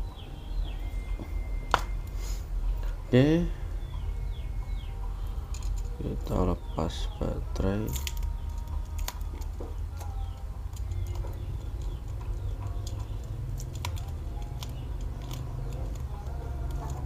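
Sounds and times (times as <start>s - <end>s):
steady low hum: 0.0s - 17.0s
fingers clicking and tapping phone: 7.4s - 17.0s.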